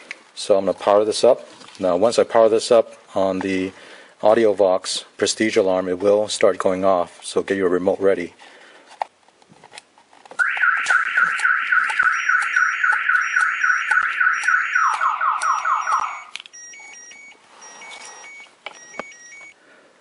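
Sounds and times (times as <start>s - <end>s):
alarm siren warbling: 10.4s - 16.4s.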